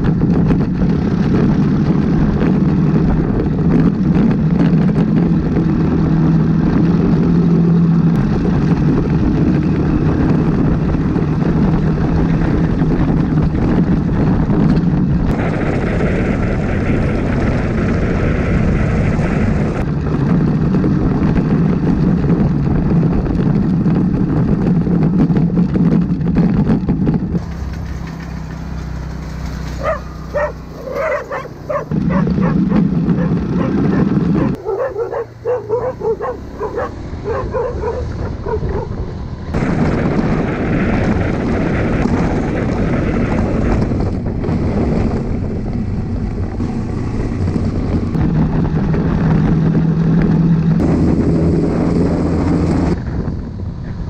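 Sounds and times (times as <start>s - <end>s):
motorcycle engine running: 0.0s - 54.0s
dog barking: 29.8s - 39.0s.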